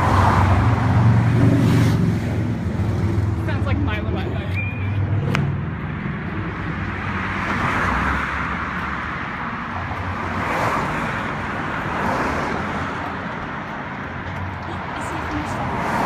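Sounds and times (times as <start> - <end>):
road traffic passing: 0.0 - 16.0.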